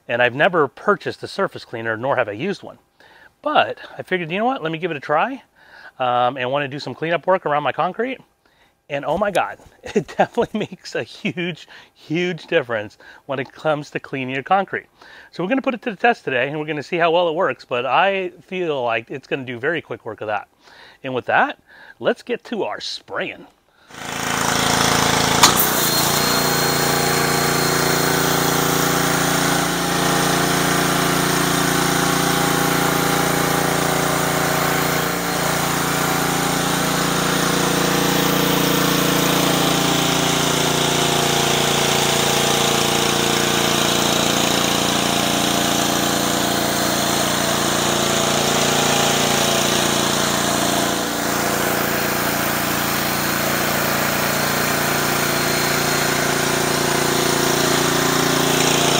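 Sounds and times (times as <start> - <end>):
pressure washer engine running: 23.9 - 58.9.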